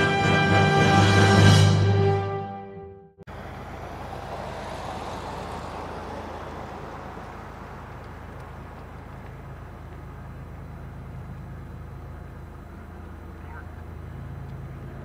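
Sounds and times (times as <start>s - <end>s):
diesel engine drone: 3.2s - 15.0s
broad rushing noise: 3.3s - 10.2s.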